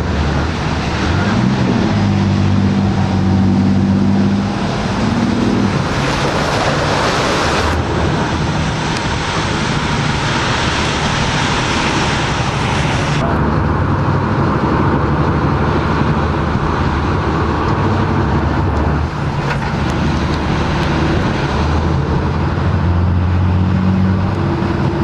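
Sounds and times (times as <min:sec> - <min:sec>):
boat engines revving: 0:00.0 - 0:25.0
rushing water: 0:00.0 - 0:25.0
wind on microphone: 0:00.0 - 0:25.0
wave breaking with hissing spray: 0:05.3 - 0:13.2.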